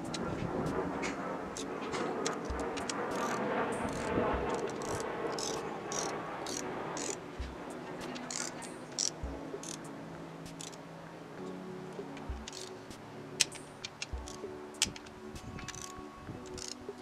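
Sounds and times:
torque wrench clicking: 1.6s - 7.2s, 8.0s - 9.8s, 10.5s - 10.8s, 12.4s - 12.7s, 13.4s - 16.8s.

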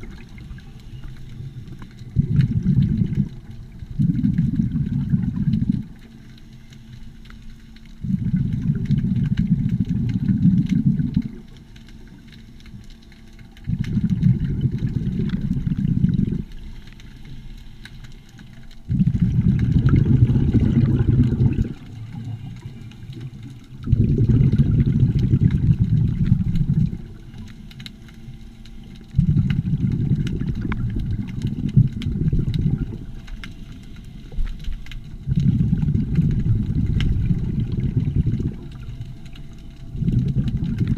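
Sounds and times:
faint steady hum: 0.0s - 40.9s
diver exhaling bubbles underwater: 1.5s - 6.1s, 8.0s - 11.4s, 13.6s - 16.8s, 18.8s - 27.6s, 29.1s - 40.9s.

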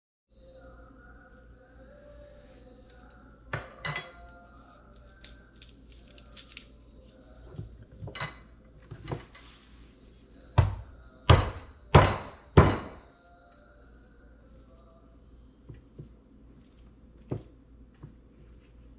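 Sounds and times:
knocks on kitchen counter: 10.6s - 13.0s.

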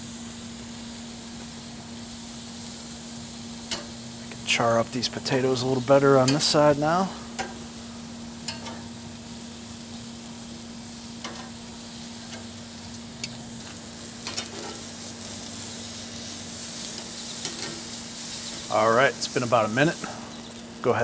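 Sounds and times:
meat sizzling on a grill: 0.0s - 21.0s.

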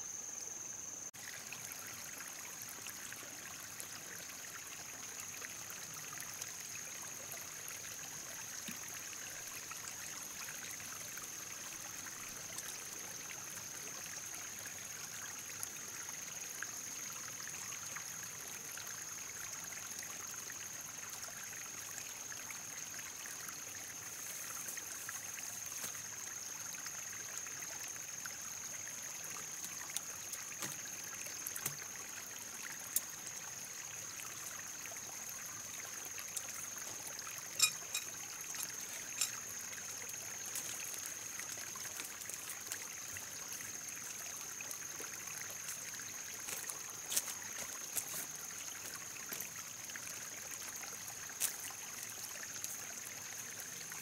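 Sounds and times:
trickle of running water: 0.0s - 54.0s
steady high-pitched tone: 37.6s - 38.2s.

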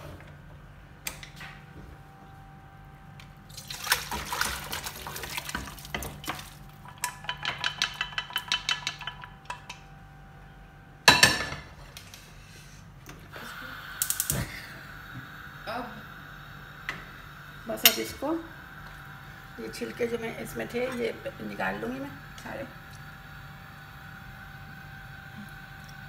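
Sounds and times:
stew pouring and sloshing: 3.4s - 6.8s.

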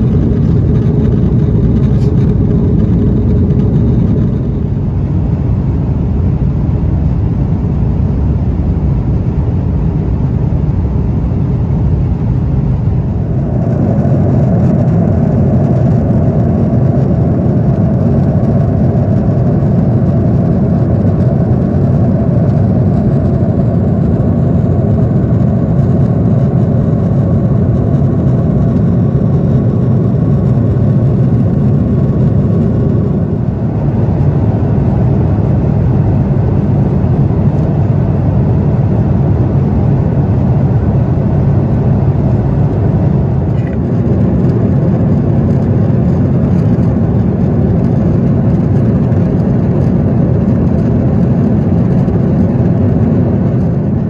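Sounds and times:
jet engine cabin rush: 0.0s - 54.0s.

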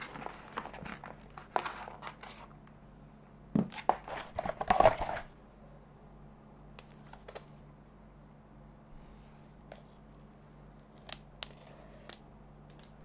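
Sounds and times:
cardboard rustling and scraping: 0.0s - 2.6s, 3.6s - 5.3s.

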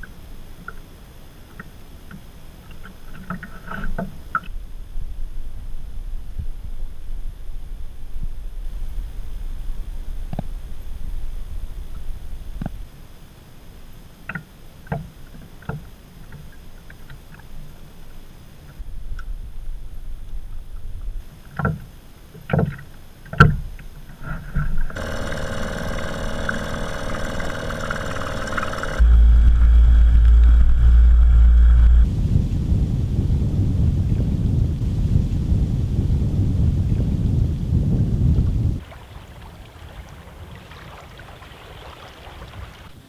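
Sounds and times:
heavy low rumble: 25.2s - 38.8s
water rushing past a boat: 38.8s - 43.0s.

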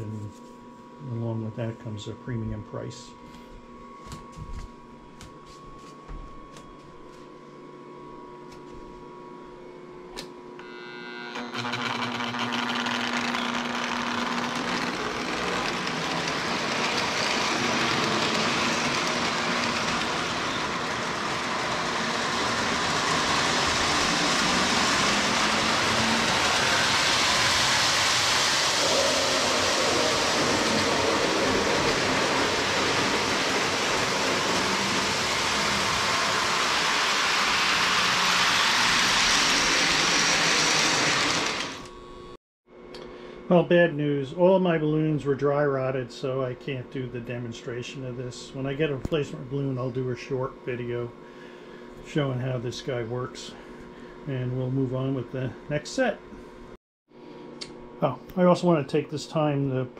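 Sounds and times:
fan motor whirring: 10.1s - 42.4s.

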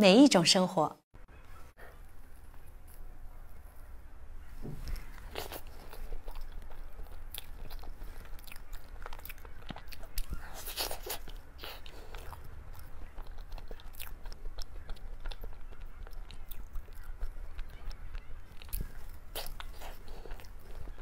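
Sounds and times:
person chewing cake: 4.8s - 21.0s.

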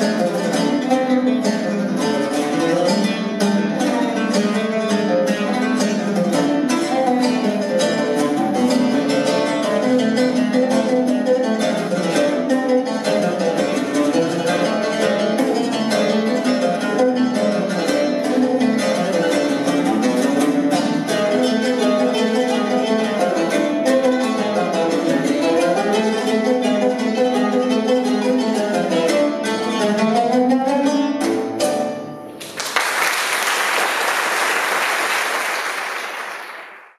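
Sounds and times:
audience applause: 32.4s - 36.9s.

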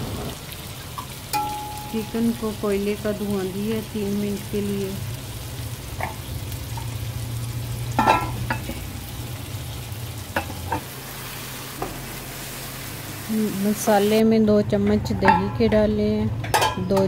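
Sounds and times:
faint sizzling: 0.0s - 14.2s
metal lid clanking: 7.9s - 8.8s.

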